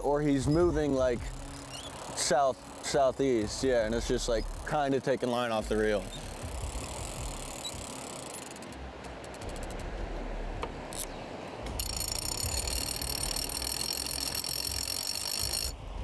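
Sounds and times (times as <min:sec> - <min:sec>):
wind or surf noise: 0:00.0 - 0:16.0
fishing reel ratcheting: 0:00.8 - 0:05.2, 0:05.9 - 0:09.9, 0:11.8 - 0:15.8.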